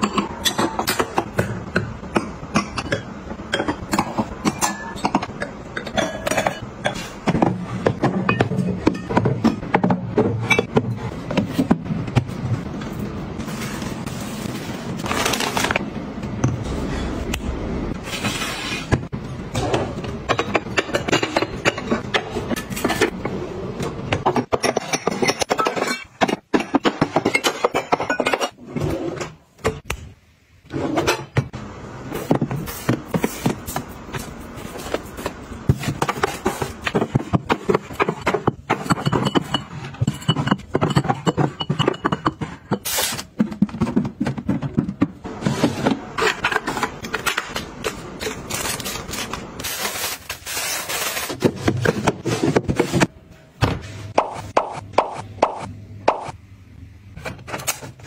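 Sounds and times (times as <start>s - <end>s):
glass bottles clinking: 27.0s - 28.6s, 38.0s - 42.8s.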